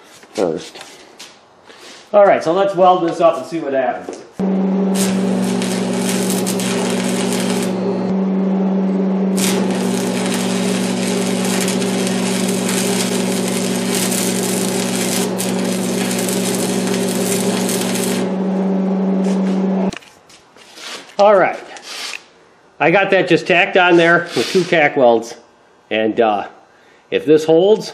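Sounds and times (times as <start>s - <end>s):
arc welding crackling sizzle: 4.4s - 8.1s, 9.3s - 19.9s
steady low hum: 4.4s - 19.9s.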